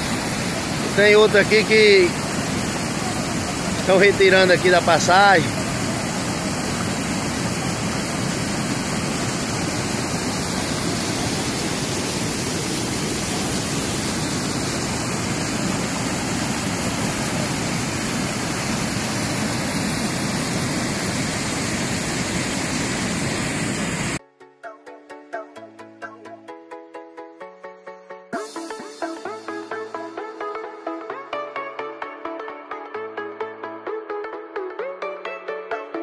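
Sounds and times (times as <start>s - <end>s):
water rushing over spillway: 0.0s - 24.2s.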